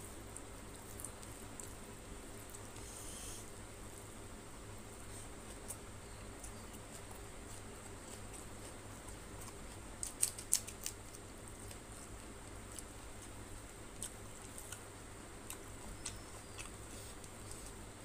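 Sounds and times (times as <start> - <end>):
wet sticky eating clicks and smacks: 9.1 - 17.4.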